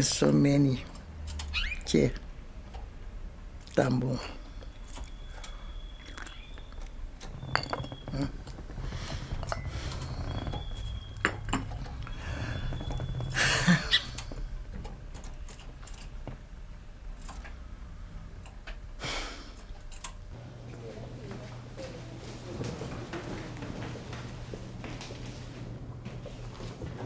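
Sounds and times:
small hard objects clinking: 7.4s - 8.3s.

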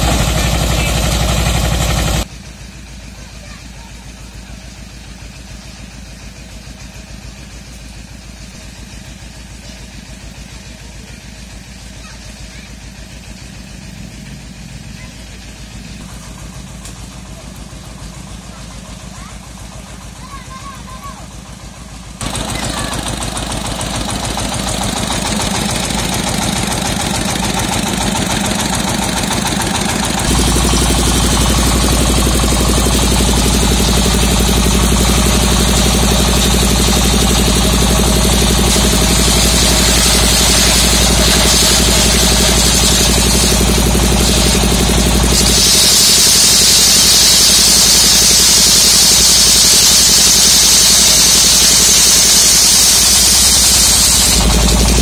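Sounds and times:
diesel engine knocking: 0.0s - 55.0s
saw blade cutting wood: 22.2s - 55.0s.

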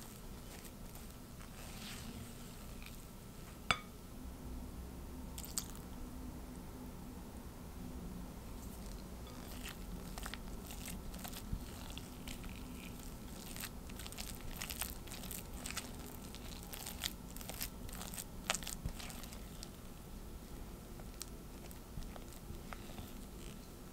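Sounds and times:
spatula scraping dough in glass bowl: 8.6s - 16.9s.

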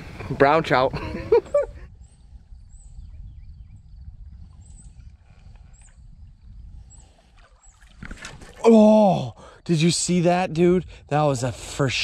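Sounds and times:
faint bird chirps: 1.9s - 8.0s.

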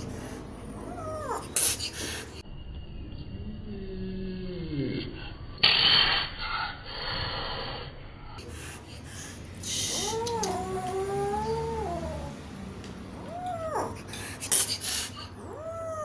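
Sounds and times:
kitten hissing: 5.6s - 7.5s, 9.3s - 12.3s, 13.2s - 16.0s
kitten crying: 9.7s - 12.4s, 13.2s - 14.1s, 15.2s - 16.0s
kitten meowing: 9.8s - 12.3s, 13.2s - 14.0s.

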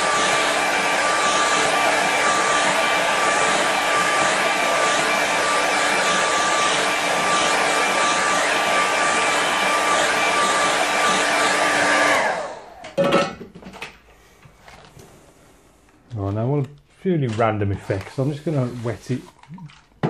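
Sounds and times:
hair dryer blowing: 0.0s - 12.9s.

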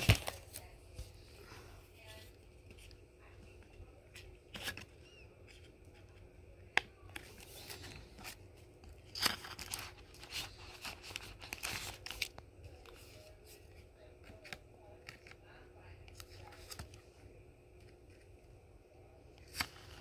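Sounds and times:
plastic sleeves crinkling: 7.0s - 17.0s.

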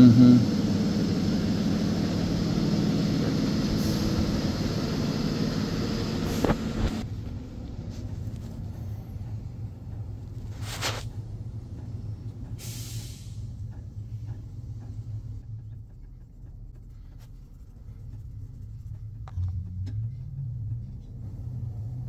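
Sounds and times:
mechanical hum: 0.0s - 12.6s
brushing sounds: 10.4s - 11.1s.

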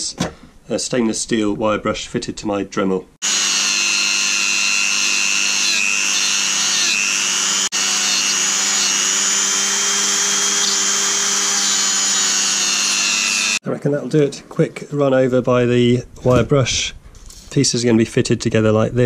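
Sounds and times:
rotary tool wire brush whine: 3.2s - 13.6s.

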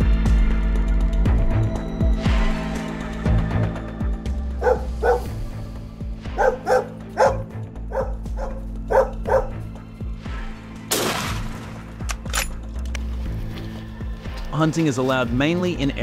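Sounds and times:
music bed: 0.0s - 10.7s
dog barking: 4.6s - 5.4s, 6.3s - 9.7s.

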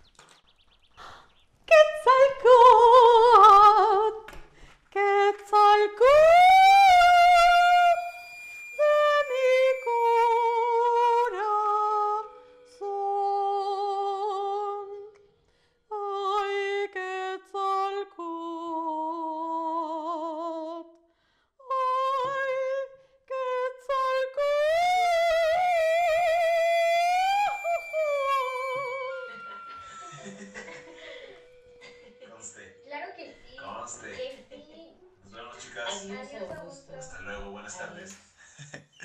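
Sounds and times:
woman singing opera: 1.7s - 4.3s, 4.9s - 15.2s, 15.9s - 20.9s, 21.6s - 32.2s.

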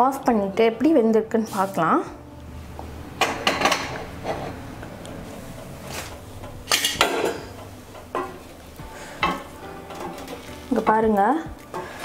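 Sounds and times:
utensils knocking on cookware: 3.2s - 4.6s, 5.6s - 8.5s, 9.2s - 11.0s.

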